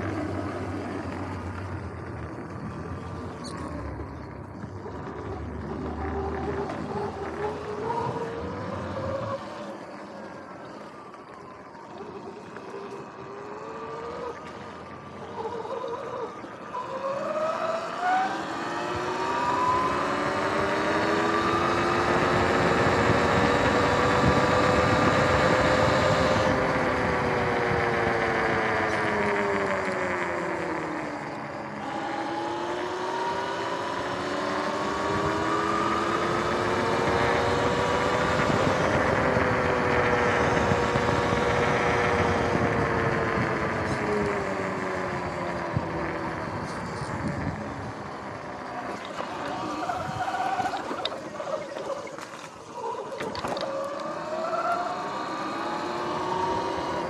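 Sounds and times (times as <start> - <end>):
electric motorbike motor whine: 0.0 - 57.0
tyre and wind noise: 18.6 - 31.6, 33.9 - 53.9.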